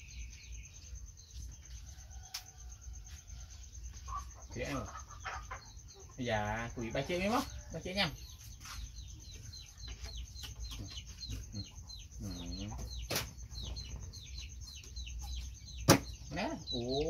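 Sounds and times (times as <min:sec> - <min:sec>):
chicks peeping: 0:00.0 - 0:17.0
sharp knock: 0:15.8 - 0:16.2.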